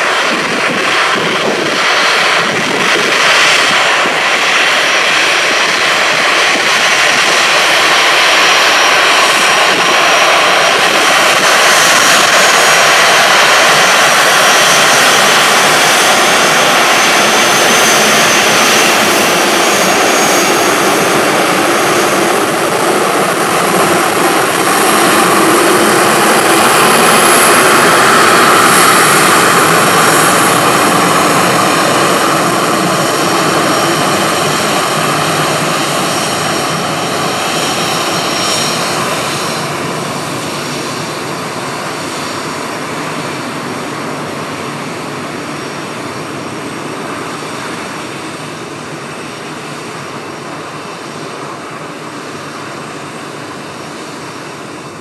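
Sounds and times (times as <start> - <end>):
jet engines taxiing: 0.0 - 55.0.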